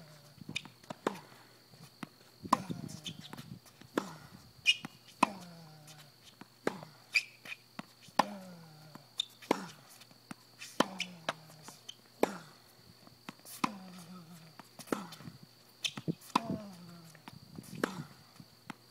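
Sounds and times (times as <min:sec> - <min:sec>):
rackets hitting tennis ball: 0:00.5 - 0:12.5, 0:13.2 - 0:18.9
tennis ball bouncing: 0:02.0 - 0:05.5, 0:06.1 - 0:08.6, 0:09.2 - 0:12.5, 0:13.2 - 0:15.2, 0:15.8 - 0:16.7.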